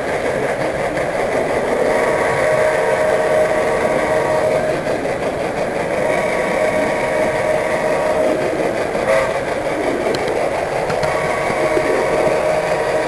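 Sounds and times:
model train motor hum: 0.0 - 13.0
wheel and rail noise: 0.0 - 13.0.

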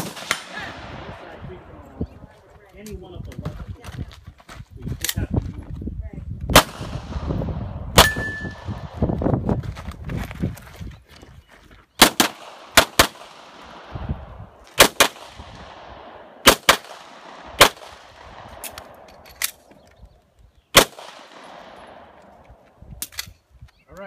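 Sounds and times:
pistol shots with echo: 0.0 - 1.4, 6.5 - 8.9, 12.0 - 14.0, 14.7 - 19.2, 20.8 - 22.3.

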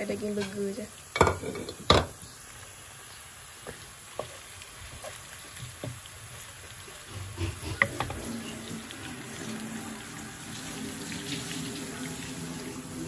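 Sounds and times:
meat sizzling in a pan: 0.0 - 13.0
wooden spatula knocking on pan: 1.2 - 2.2.

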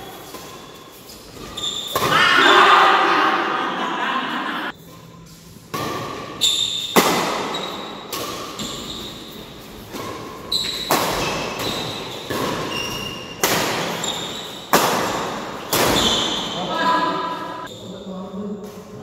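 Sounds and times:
racket hitting shuttlecock: 0.0 - 2.6, 5.7 - 16.5
shoe squeaks on court: 0.1 - 2.0, 6.4 - 9.4, 10.0 - 14.7, 15.9 - 16.6.

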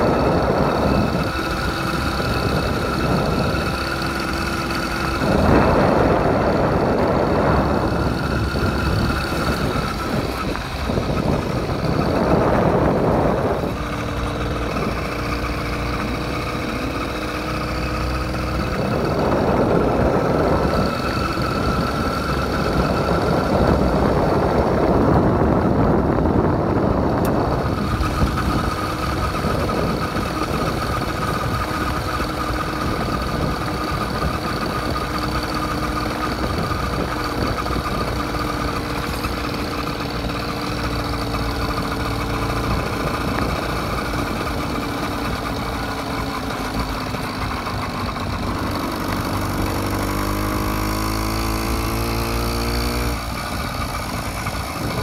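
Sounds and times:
small motorbike engine running: 0.0 - 55.0
wind rushing: 5.0 - 15.0.

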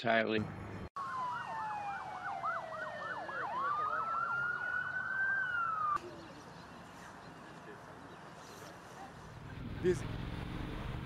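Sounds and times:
siren wailing: 1.0 - 6.0
siren yelp: 1.0 - 6.0.

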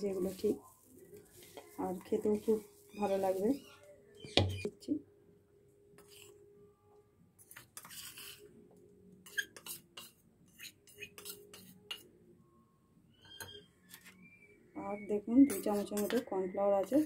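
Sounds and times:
metal spoon scraping a steel bowl: 7.4 - 8.5, 9.2 - 12.1, 15.4 - 17.0.

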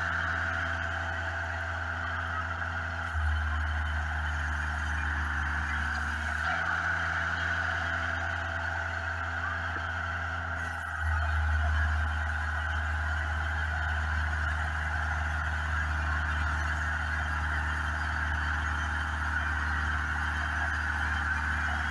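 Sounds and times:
band sawmill engine droning: 0.0 - 21.9
band saw cutting log: 3.1 - 6.5.

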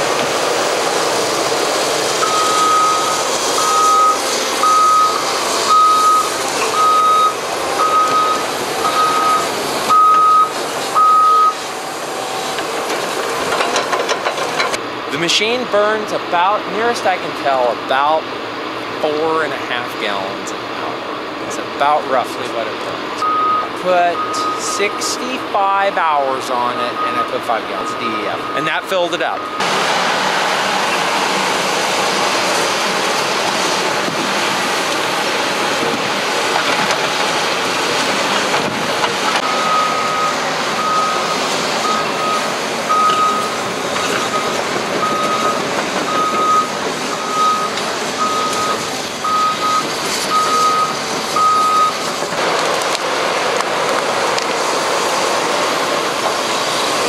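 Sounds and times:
diesel engine and hydraulics: 0.0 - 57.0
backup alarm beeping: 2.2 - 11.6, 23.2 - 25.1, 26.9 - 29.7, 39.4 - 52.0.

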